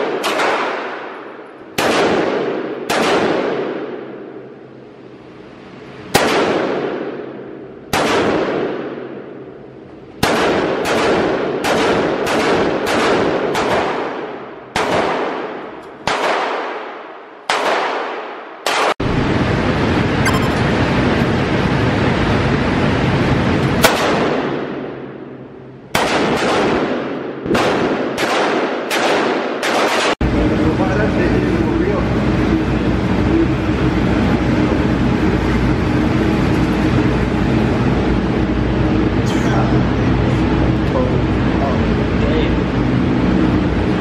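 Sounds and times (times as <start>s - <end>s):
steady loud noise: 0.0s - 16.0s, 18.9s - 44.0s
gunshots echoing indoors: 0.0s - 19.0s, 23.8s - 30.2s.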